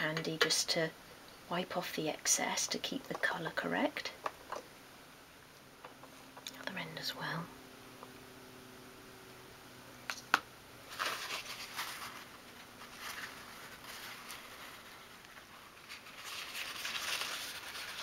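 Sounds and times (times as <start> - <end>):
paper tissue rustling: 10.8 - 18.0.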